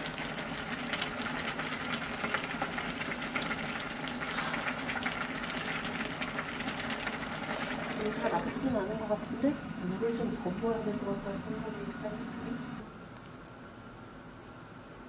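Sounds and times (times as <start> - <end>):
stew bubbling with small pops: 0.0 - 8.8.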